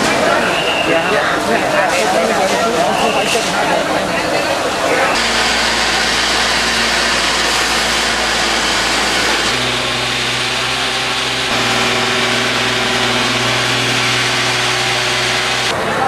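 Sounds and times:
fire truck engine running: 5.0s - 15.8s
loud rushing noise: 5.1s - 16.0s.

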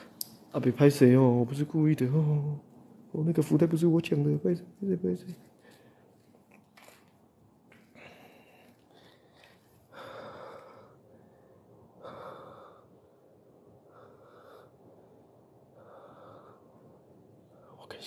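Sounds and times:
person breathing heavily: 7.8s - 17.6s.

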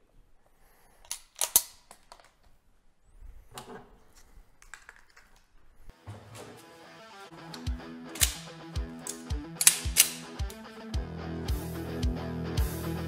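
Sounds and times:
metallic clicks of pistols handled: 1.0s - 2.6s, 4.2s - 5.6s, 7.5s - 10.7s
background music: 6.0s - 13.0s.

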